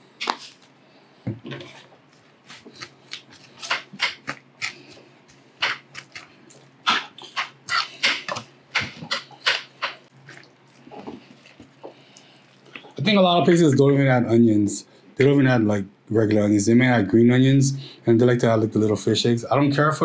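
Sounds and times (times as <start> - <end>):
spoon mixing in ceramic bowl: 1.6 - 11.9.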